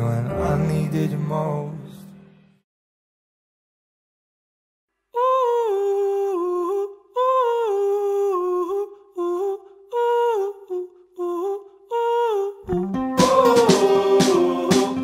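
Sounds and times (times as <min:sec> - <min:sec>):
person humming a slow melody: 0:05.2 - 0:14.7.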